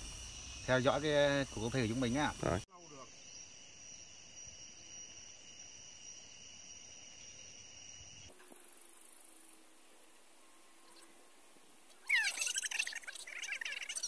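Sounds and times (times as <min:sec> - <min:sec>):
high-pitched insect chirring: 0:00.0 - 0:08.3, 0:12.0 - 0:14.0.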